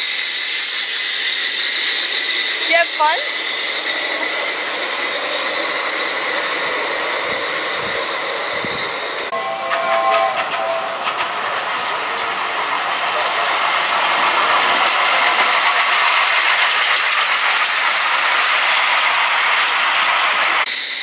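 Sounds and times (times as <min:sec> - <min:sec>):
miniature train rushing along track: 0:00.0 - 0:21.0
wheels clicking over rail joints: 0:00.0 - 0:21.0.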